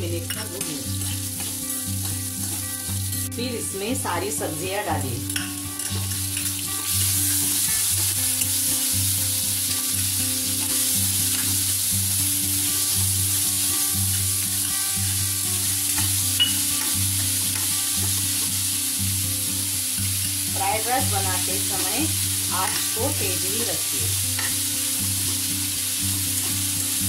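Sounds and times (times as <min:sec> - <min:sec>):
vegetables sizzling in hot oil: 0:00.0 - 0:27.0
metal spoon clinking on pan: 0:05.3 - 0:06.6, 0:15.9 - 0:17.7.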